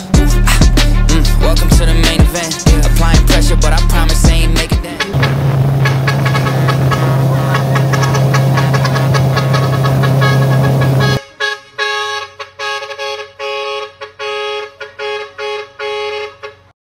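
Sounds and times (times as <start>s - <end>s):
background music: 0.0s - 11.2s
two-tone car horn toots: 5.0s - 16.7s.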